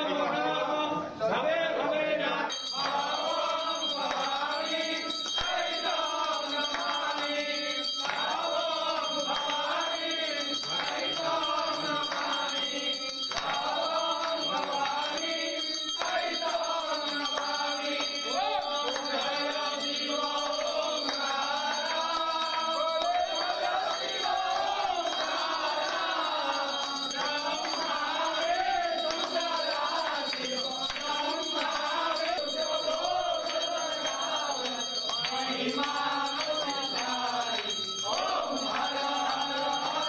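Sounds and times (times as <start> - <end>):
men chanting together: 0.0 - 40.0.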